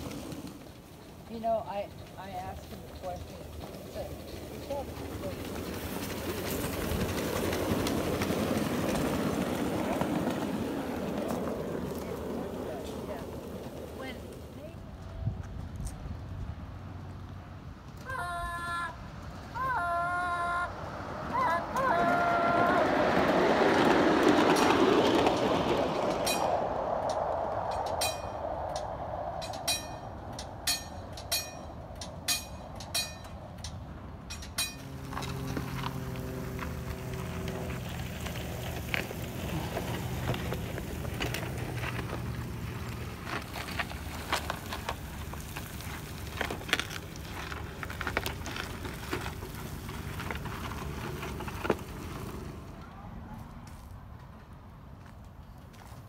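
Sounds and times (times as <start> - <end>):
miniature railway cars rolling: 0.0 - 56.0
wheels clicking over rail joints: 0.0 - 56.0
shovel scraping gravel: 37.3 - 52.6.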